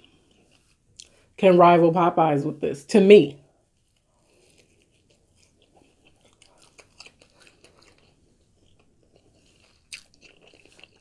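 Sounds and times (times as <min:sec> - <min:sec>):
chewing with mouth clicks: 0:03.7 - 0:11.0.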